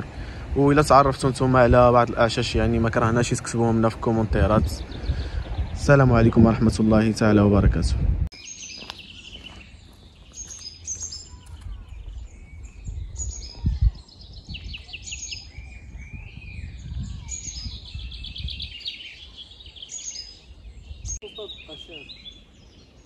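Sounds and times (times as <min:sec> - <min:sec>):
low rumble: 0:00.0 - 0:08.3
songbirds singing and calling: 0:00.0 - 0:23.0.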